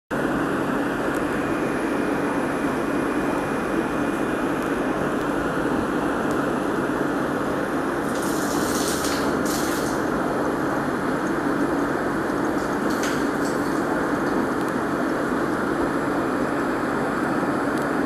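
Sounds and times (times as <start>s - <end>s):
low steady hum: 0.1s - 18.0s
air bubbling through filter tube: 7.9s - 16.0s.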